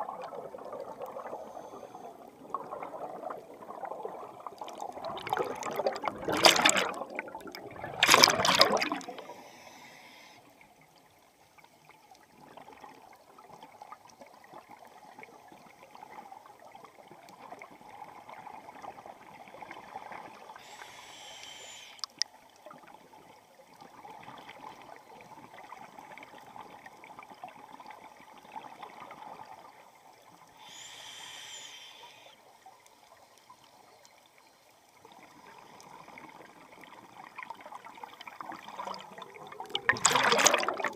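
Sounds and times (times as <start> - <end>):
air bubbles rushing underwater: 0.0 - 9.4, 36.0 - 40.9
faint underwater noise: 0.0 - 40.9
brief hisses: 20.7 - 22.1, 30.7 - 32.3.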